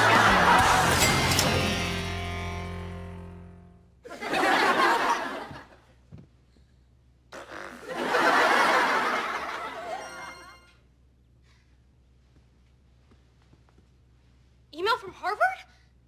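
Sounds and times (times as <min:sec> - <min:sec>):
audience laughter: 0:00.0 - 0:01.6, 0:04.1 - 0:05.8, 0:07.8 - 0:10.6
person blowing nose: 0:07.4 - 0:08.0.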